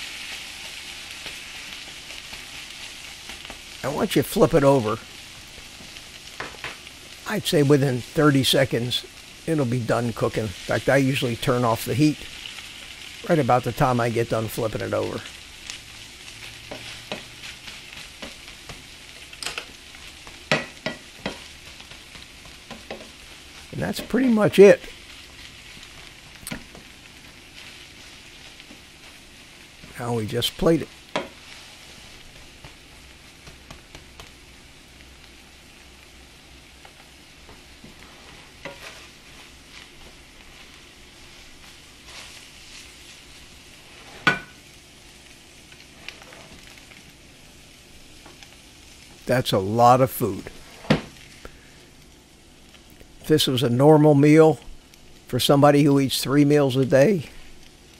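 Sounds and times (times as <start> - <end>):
omelette sizzling in frying pan: 0.0 - 57.9
spatula scraping and knocking pan: 16.6 - 23.3, 37.5 - 40.8, 43.8 - 44.6
spatula scraping a pan: 37.8 - 44.6, 45.8 - 46.7.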